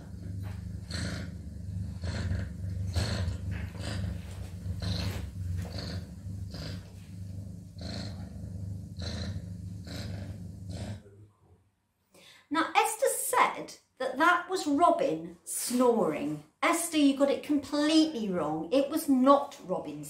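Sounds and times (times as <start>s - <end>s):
cat purring: 0.0s - 11.2s.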